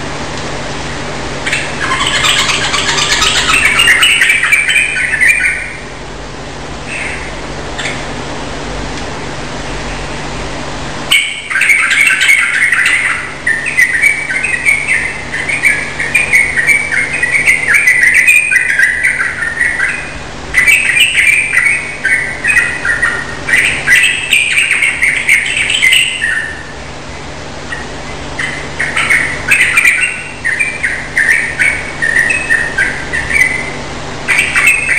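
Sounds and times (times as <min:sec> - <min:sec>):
bird singing chattering phrases: 0:01.4 - 0:05.8, 0:11.1 - 0:26.7, 0:27.7 - 0:34.9.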